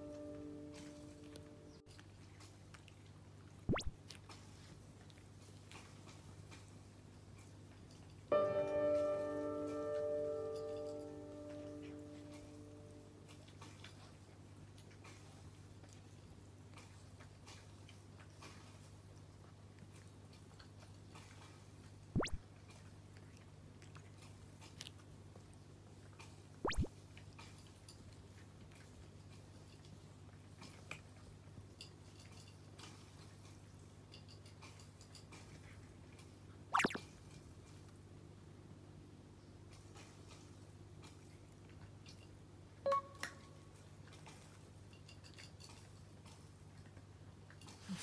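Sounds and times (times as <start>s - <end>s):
cat crunching dry kibble: 2.0s - 8.2s, 13.2s - 36.3s
sharp mouth sounds: 3.7s - 4.0s, 22.2s - 22.4s, 26.6s - 26.9s, 36.8s - 37.0s.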